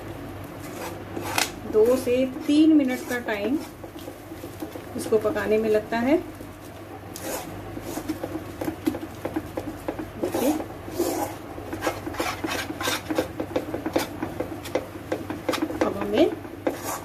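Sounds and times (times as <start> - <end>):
metal spatula scraping a pan: 0.6 - 3.8, 7.2 - 8.4, 10.2 - 13.3, 16.6 - 17.0.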